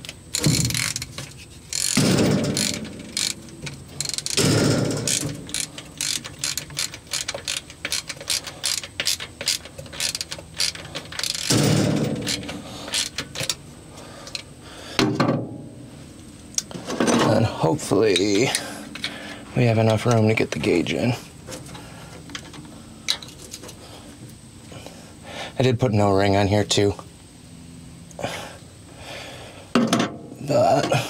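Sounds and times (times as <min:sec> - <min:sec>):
hand ratchet clicking: 0:00.0 - 0:13.6.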